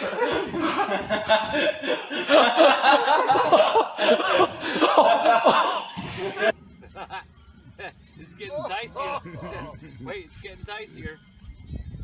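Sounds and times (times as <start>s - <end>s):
people laughing hard: 0.0s - 7.9s.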